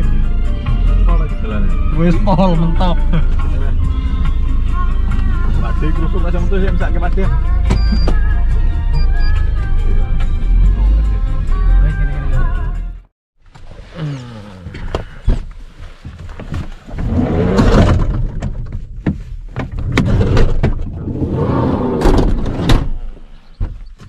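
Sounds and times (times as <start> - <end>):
rumbling and rustling: 13.4 - 24.0.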